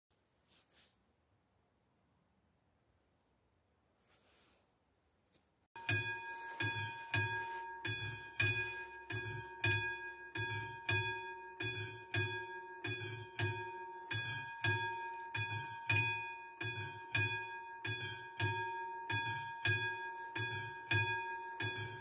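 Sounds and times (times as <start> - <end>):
level crossing warning bell: 5.8 - 22.0
low knock beneath bell: 5.8 - 22.0.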